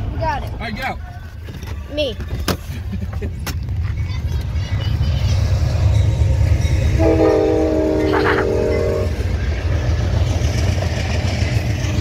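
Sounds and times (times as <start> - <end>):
train rumbling past: 1.7 - 12.0
train horn blast: 7.0 - 9.3.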